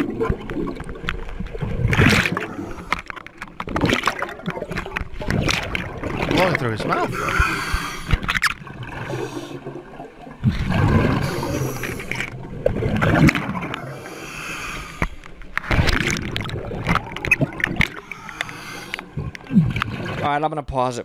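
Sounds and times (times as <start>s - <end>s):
gurgling exhaled bubbles: 0.0s - 20.4s
diver breathing through regulator: 2.3s - 3.1s, 7.1s - 8.4s, 11.0s - 12.3s, 13.8s - 15.2s, 17.9s - 19.1s.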